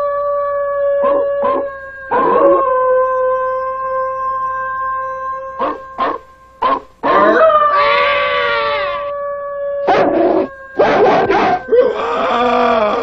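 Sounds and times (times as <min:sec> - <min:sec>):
wolves howling and yelping: 0:01.0 - 0:03.2, 0:05.6 - 0:09.1, 0:09.8 - 0:13.0.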